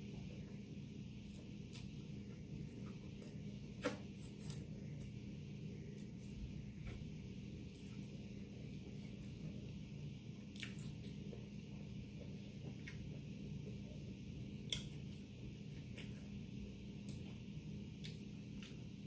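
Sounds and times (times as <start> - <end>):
steady low hum: 0.0 - 19.0
person chewing food: 10.4 - 17.4.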